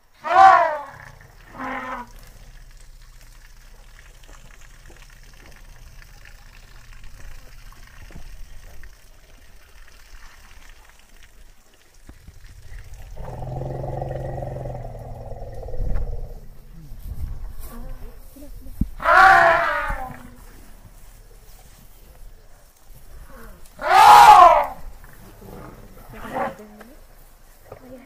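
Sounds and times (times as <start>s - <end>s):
elephant calling: 0.2s - 2.8s, 19.0s - 20.5s, 23.3s - 24.9s.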